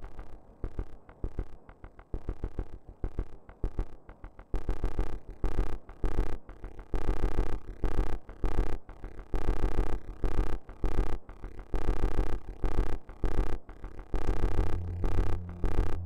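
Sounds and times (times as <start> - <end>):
arpeggiated synthesizer music: 14.6 - 16.0.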